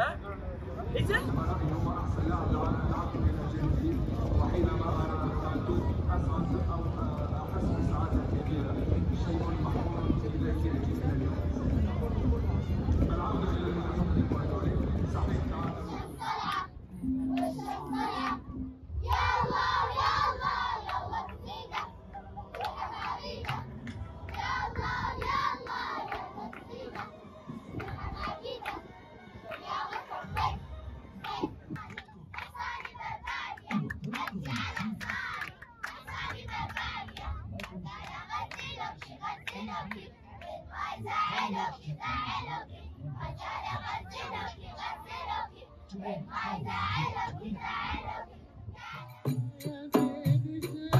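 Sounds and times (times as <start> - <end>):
crowd talking and calling out: 0.0 - 50.9
girls chanting and singing: 15.6 - 49.4.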